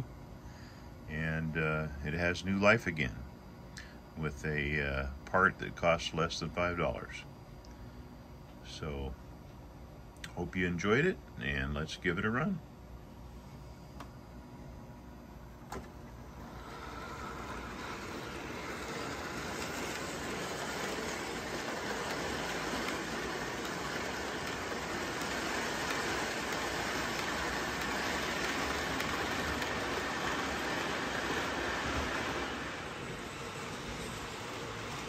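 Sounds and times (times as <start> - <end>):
model train rolling on metal track: 16.4 - 35.0.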